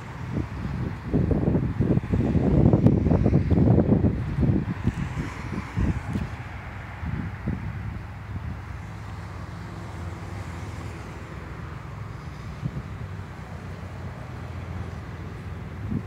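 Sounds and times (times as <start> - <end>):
wind noise on microphone: 0.0 - 16.0.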